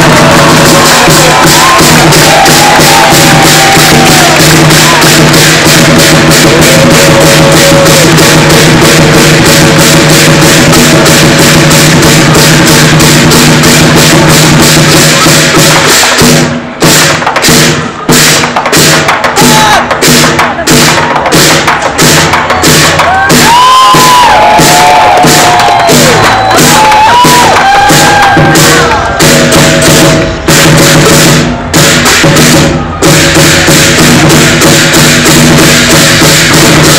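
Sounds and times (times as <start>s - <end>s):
crowd shouting and cheering: 0.0s - 12.7s, 19.2s - 21.6s, 22.2s - 33.8s
drum cymbals and gong beat: 0.0s - 36.9s.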